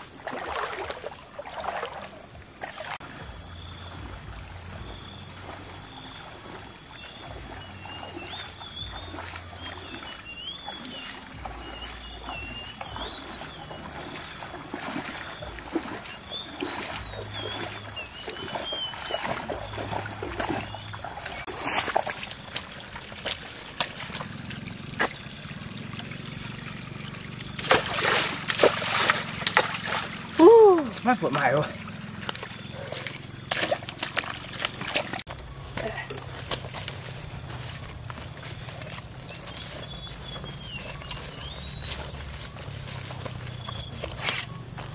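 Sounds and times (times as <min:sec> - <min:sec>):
feet splashing in shallow water: 0:00.0 - 0:44.9
stick jabbing into water: 0:27.6 - 0:30.1.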